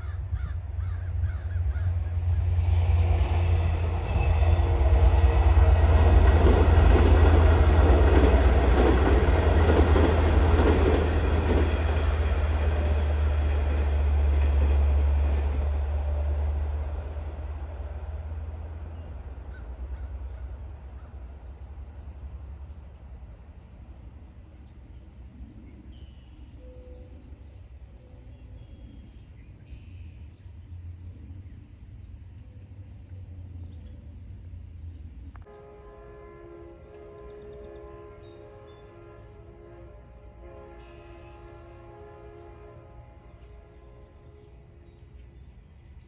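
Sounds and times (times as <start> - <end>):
train wheels rumbling on rails: 0.0 - 25.7
diesel locomotive engine drone: 0.0 - 46.0.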